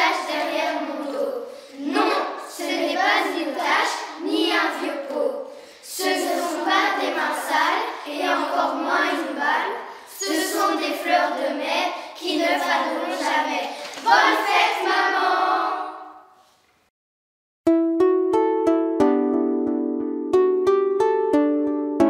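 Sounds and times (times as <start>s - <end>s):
children singing in unison: 0.0s - 16.2s.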